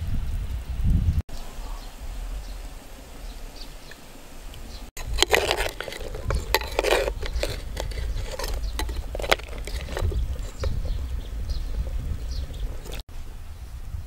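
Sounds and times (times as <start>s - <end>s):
metal spoon scraping clay pot: 5.0s - 13.0s.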